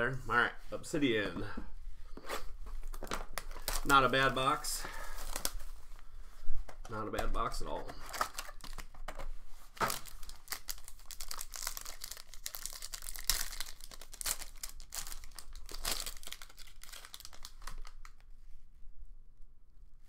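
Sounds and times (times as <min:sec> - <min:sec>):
wrapper crinkling and tearing: 0:02.8 - 0:04.1, 0:04.9 - 0:05.7, 0:08.0 - 0:09.1, 0:09.7 - 0:18.2.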